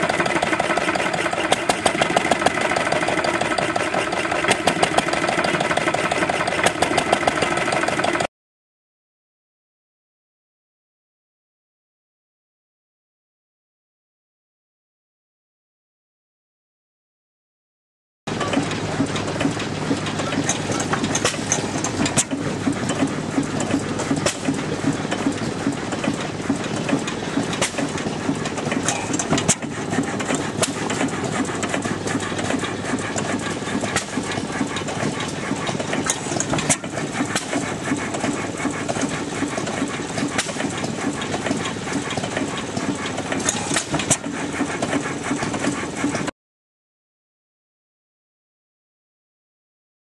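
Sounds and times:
sharp engine knocks: 0:00.0 - 0:07.5, 0:18.3 - 0:46.3
stationary engine clattering: 0:00.0 - 0:08.3, 0:18.3 - 0:46.3.

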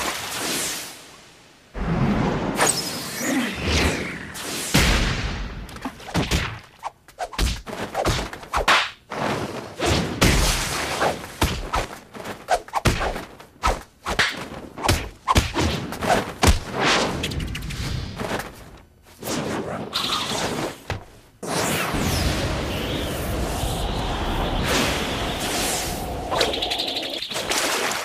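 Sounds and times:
punch and block impacts: 0:14.1 - 0:16.8.

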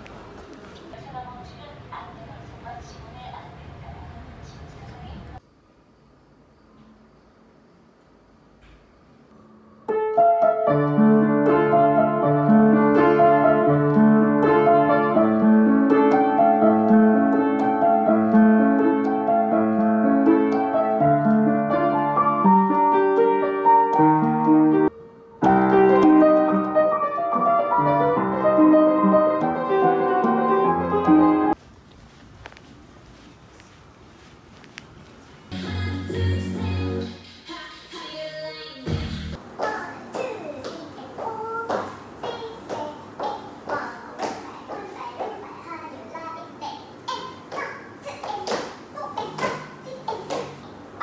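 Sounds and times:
upright piano playing: 0:09.4 - 0:31.6.

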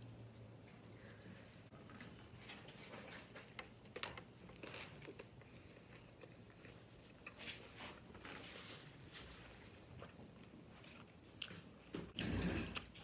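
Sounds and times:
chewing with mouth smacking: 0:04.2 - 0:07.7.

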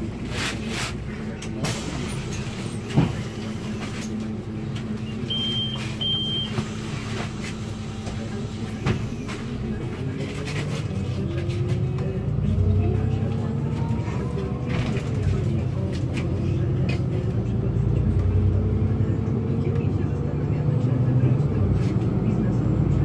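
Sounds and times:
bus diesel engine idling: 0:00.0 - 0:23.0.

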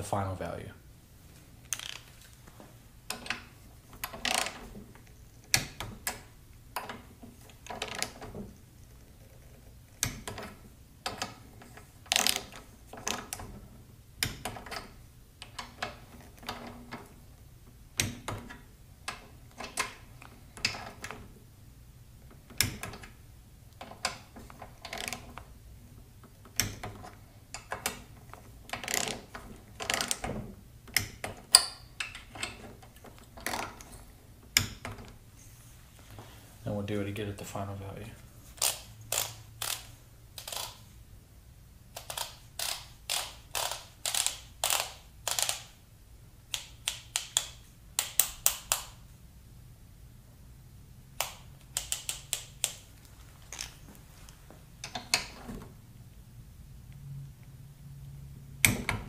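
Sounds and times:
torque wrench ratcheting clicks: 0:42.0 - 0:45.7, 0:51.2 - 0:52.8.

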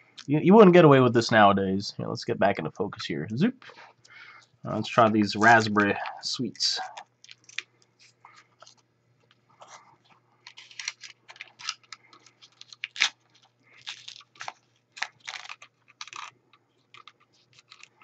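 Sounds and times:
paper wrapper crinkling and tearing: 0:04.7 - 0:18.0.

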